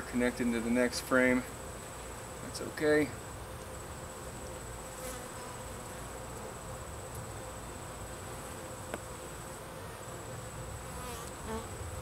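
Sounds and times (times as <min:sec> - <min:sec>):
bees buzzing: 0:03.1 - 0:12.0.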